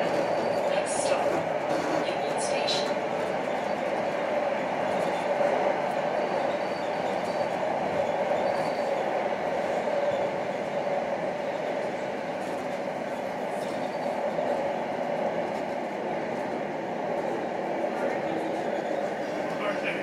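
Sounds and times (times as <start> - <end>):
streetcar drive hum: 0.0 - 20.0
streetcar wheels rumbling on rails: 0.0 - 20.0
high wheel squeal: 6.2 - 9.0.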